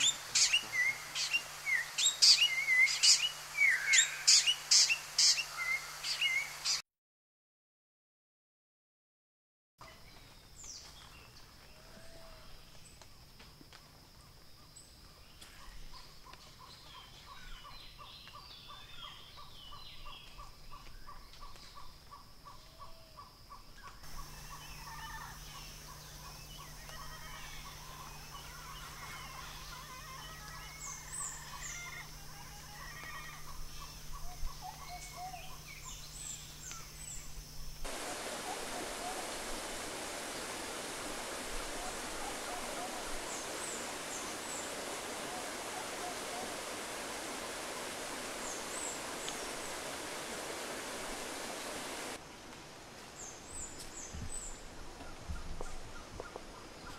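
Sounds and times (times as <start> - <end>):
birds whistling and chattering: 0.0 - 6.8, 24.2 - 37.2
waterfall rushing: 0.0 - 6.8, 37.9 - 52.2.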